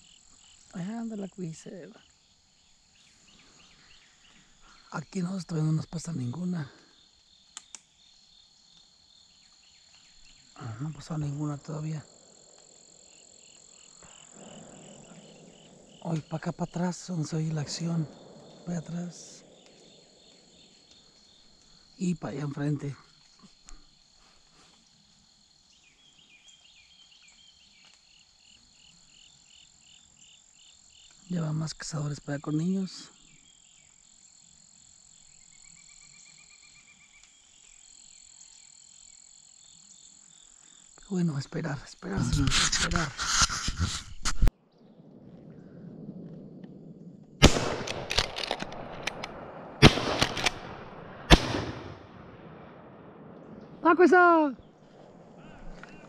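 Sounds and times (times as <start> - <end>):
cricket chirp: 0.0 - 56.0
insect drone: 0.0 - 56.0
loud shotgun shots with echo: 47.4 - 53.7
faint distant gunshots: 47.4 - 53.9.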